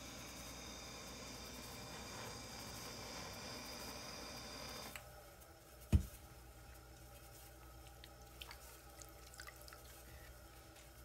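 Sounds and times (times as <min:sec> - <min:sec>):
pottery wheel humming: 0:00.0 - 0:11.0
faint ticks and drips: 0:06.8 - 0:11.0.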